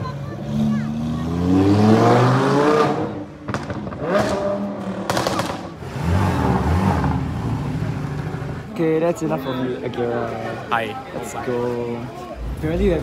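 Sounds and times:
car engine revving: 0.2 - 8.7
exhaust pops and crackles: 3.4 - 5.8.

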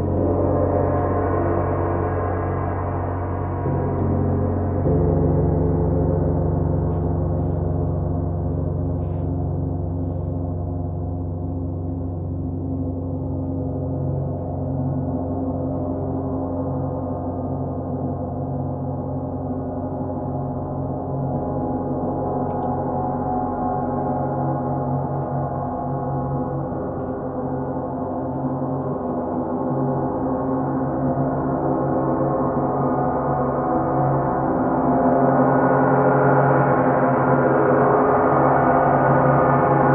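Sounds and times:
large gongs ringing: 0.0 - 14.6.

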